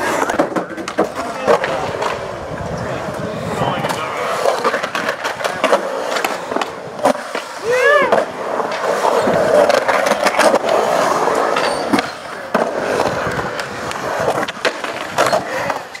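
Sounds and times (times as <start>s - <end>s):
skateboard clacks: 0.0s - 16.0s
skateboard wheels rolling on concrete: 0.0s - 16.0s.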